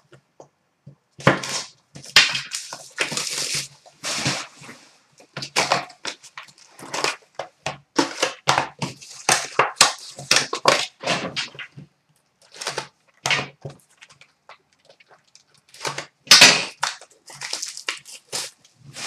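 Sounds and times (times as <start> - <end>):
packaging crinkling and rustling: 1.2 - 19.0.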